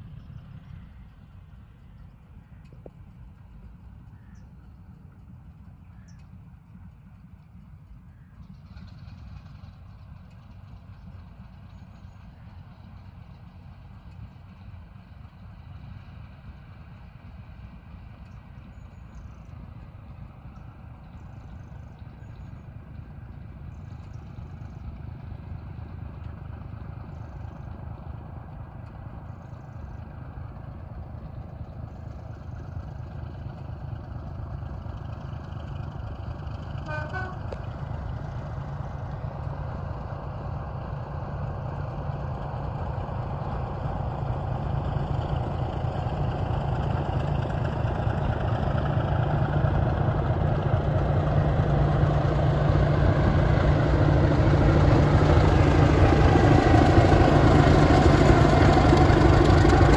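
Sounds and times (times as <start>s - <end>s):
diesel locomotive engine rumble: 0.0s - 59.9s
locomotive horn toot: 36.8s - 37.7s.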